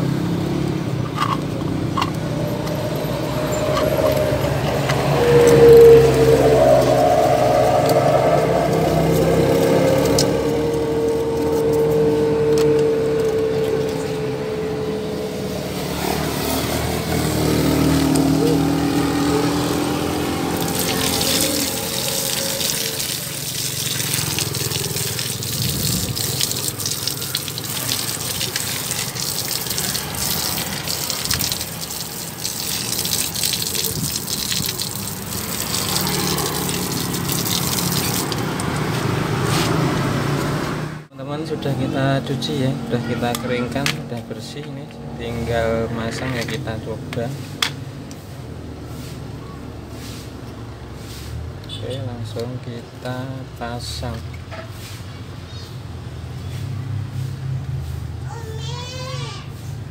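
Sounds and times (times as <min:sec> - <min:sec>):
running water splashing: 0:17.1 - 0:39.2
toothbrush scrubbing: 0:20.4 - 0:38.9.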